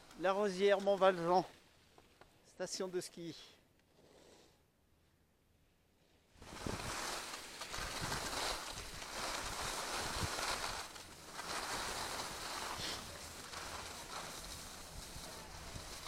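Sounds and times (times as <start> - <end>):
skis scraping over packed snow: 0.0 - 1.6, 6.4 - 16.0
wind rumbling on microphone: 6.4 - 16.0.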